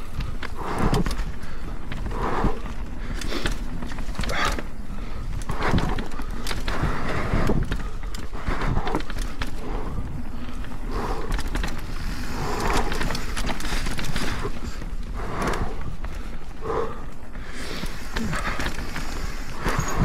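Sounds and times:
bike rattling and clicking: 0.0s - 20.0s
bike tyres rolling over dirt: 0.0s - 20.0s
rushing wind noise: 0.0s - 20.0s.

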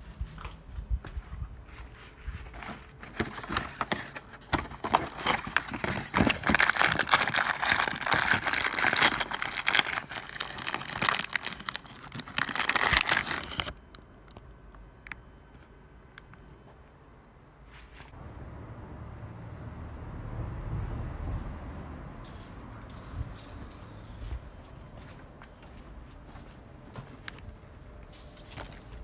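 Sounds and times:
foil packaging crinkling: 2.4s - 14.4s.

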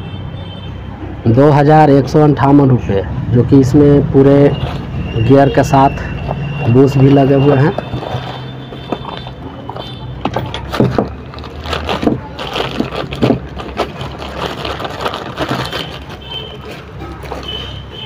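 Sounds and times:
plastic bag crinkling: 6.8s - 9.8s, 10.7s - 17.8s.

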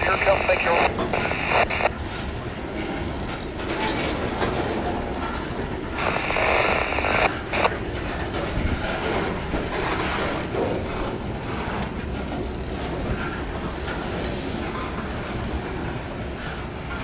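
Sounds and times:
railcar wheels rumbling on rails: 1.9s - 6.0s, 7.8s - 17.0s.

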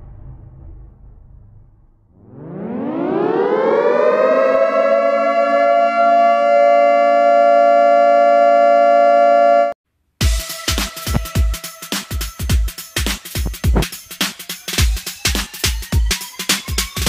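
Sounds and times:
air-raid siren wailing: 2.2s - 9.8s.

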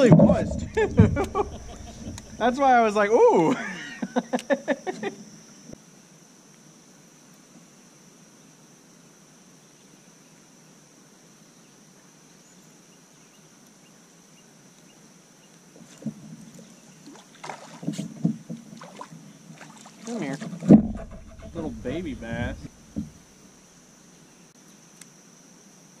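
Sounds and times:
insect chirring: 0.0s - 7.4s, 18.0s - 26.0s
light knocks: 0.1s - 2.4s.

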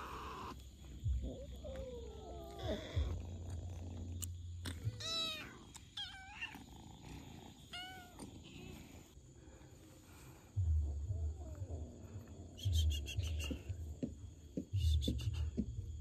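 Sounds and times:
kittens mewing: 0.0s - 8.9s
low steady rumble: 9.1s - 14.3s.

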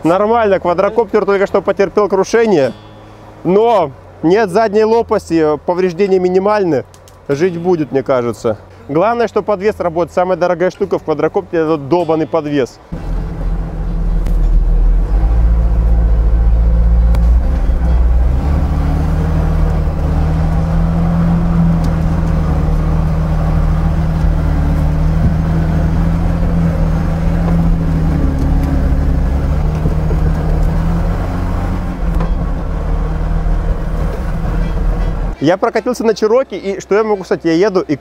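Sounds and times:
truck engine running under load: 12.9s - 35.4s.

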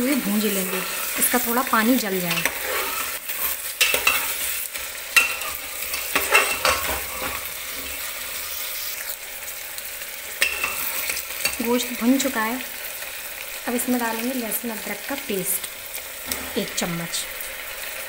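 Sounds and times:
meat sizzling in hot oil: 0.0s - 18.0s
metal ladle scraping a pot: 2.2s - 4.6s, 5.2s - 8.2s.

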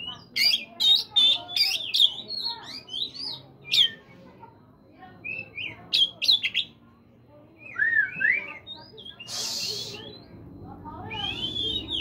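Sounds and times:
bird singing whistled notes: 0.0s - 4.0s, 5.2s - 6.7s, 7.5s - 10.4s, 11.0s - 12.0s.

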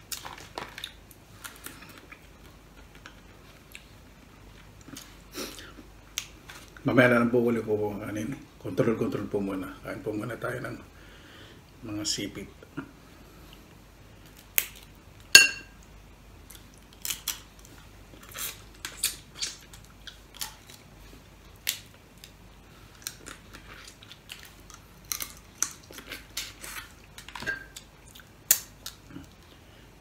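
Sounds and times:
crab shells cracking: 16.6s - 17.6s.

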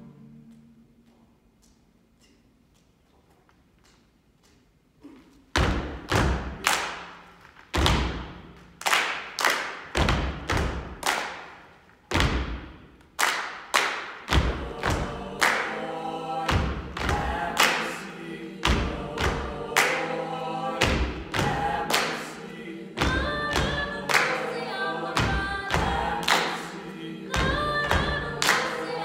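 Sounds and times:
choir singing: 0.0s - 1.0s, 14.2s - 29.0s
hand claps and foot stomps: 5.6s - 15.7s.

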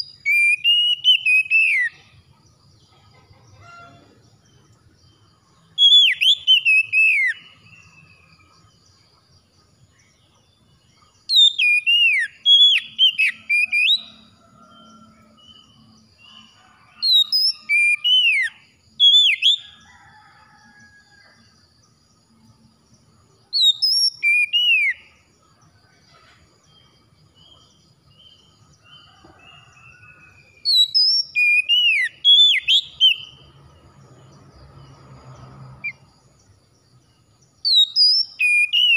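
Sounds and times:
magpie-robin whistled song: 0.0s - 2.1s, 5.7s - 8.2s, 11.2s - 14.4s, 17.0s - 19.8s, 23.5s - 25.2s, 29.5s - 33.5s, 37.6s - 38.9s
faint bird chirps: 0.0s - 21.6s, 22.3s - 33.9s.

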